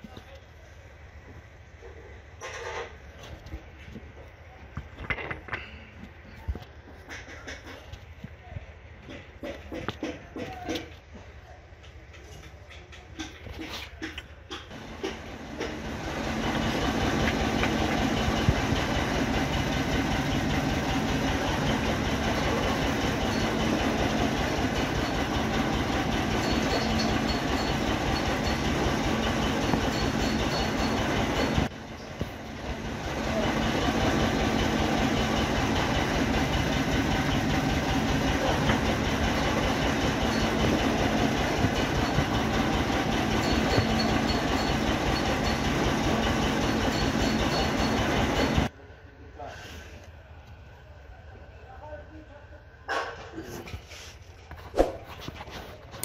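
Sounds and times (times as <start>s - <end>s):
diesel engine running: 14.5s - 48.7s.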